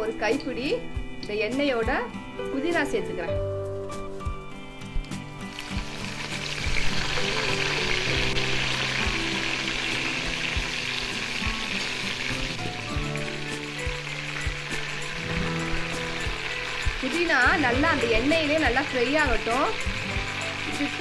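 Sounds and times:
leaves sizzling in hot oil: 0.0s - 3.0s, 5.4s - 21.0s.

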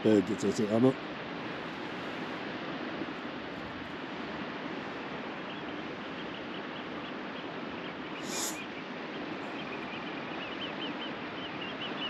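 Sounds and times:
wind: 0.0s - 12.0s
birds calling: 5.2s - 12.0s
brief hiss: 8.2s - 8.6s.

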